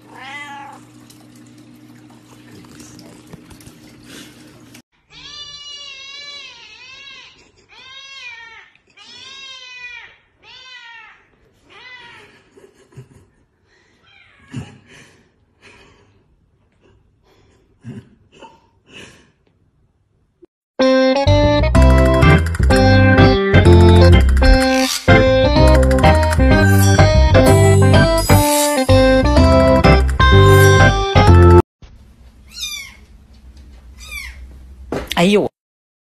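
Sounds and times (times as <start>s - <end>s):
cat meowing: 0.0s - 0.8s, 5.1s - 12.3s, 32.5s - 33.1s.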